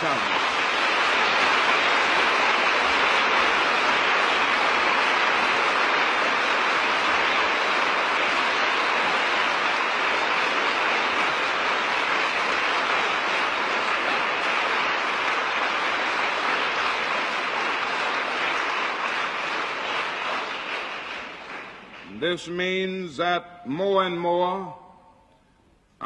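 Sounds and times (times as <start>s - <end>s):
large audience applauding: 0.0s - 24.6s.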